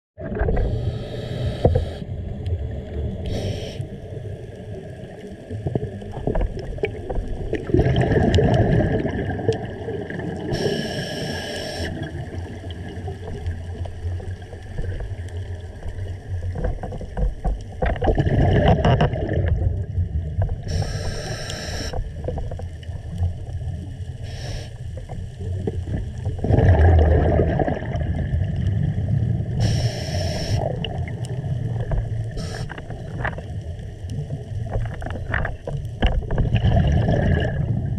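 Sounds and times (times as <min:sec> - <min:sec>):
bubbling exhaled air underwater: 0:00.2 - 0:37.9
regulator hissing inhalations: 0:00.6 - 0:02.0, 0:03.3 - 0:03.9, 0:10.5 - 0:12.0, 0:20.7 - 0:22.0, 0:24.2 - 0:24.8, 0:29.6 - 0:30.7, 0:32.4 - 0:32.8.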